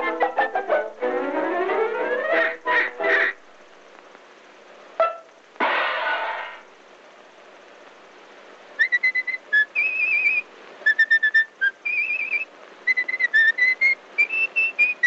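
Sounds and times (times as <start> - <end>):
film soundtrack hiss: 0.0 - 15.0
person whistling a tune: 8.8 - 15.0.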